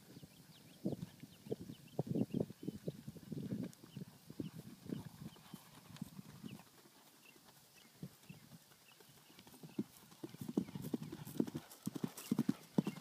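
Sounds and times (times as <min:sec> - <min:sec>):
horse hoofbeats on grass: 0:03.3 - 0:13.0.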